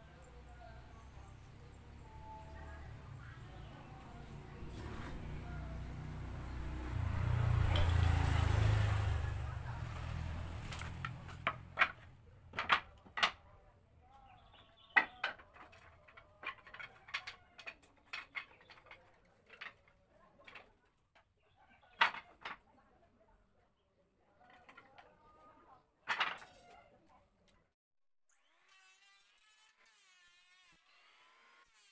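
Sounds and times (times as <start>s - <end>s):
wooden offcuts clattering: 9.9s - 13.6s, 14.7s - 22.7s, 24.4s - 25.1s, 26.0s - 26.8s.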